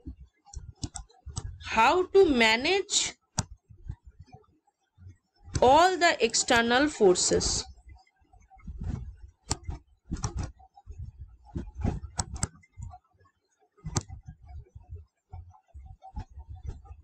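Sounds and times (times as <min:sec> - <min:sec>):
stylus tapping on tablet: 0:13.9 - 0:14.2.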